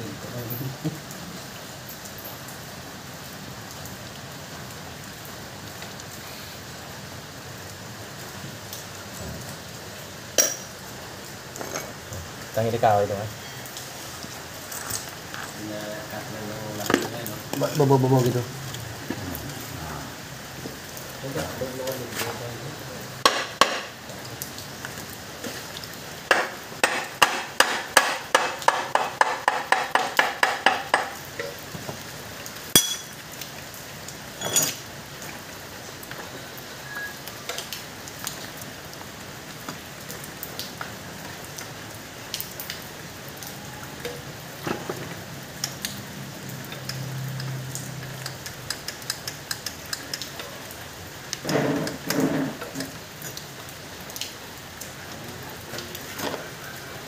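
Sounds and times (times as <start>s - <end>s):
tools clinking and knocking: 10.4s - 10.8s, 32.8s - 33.2s, 34.4s - 34.8s
hammer striking metal: 32.8s - 33.1s.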